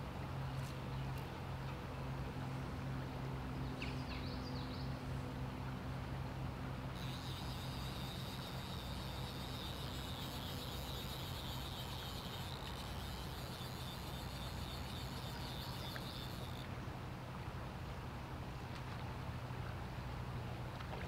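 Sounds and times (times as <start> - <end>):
constant low hum: 0.0 - 21.0
running water: 6.8 - 17.4
high-pitched chirring: 7.0 - 16.7.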